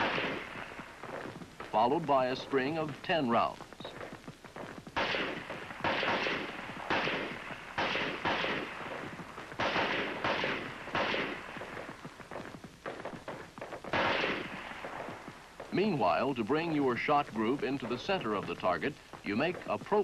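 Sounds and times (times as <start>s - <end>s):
rifle shots echoing: 0.0s - 1.2s, 5.0s - 12.0s, 13.3s - 15.9s.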